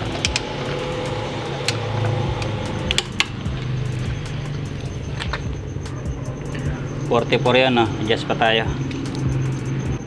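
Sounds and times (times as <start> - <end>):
steady low hum: 0.0 - 10.0
socket wrench clicking: 1.6 - 3.7.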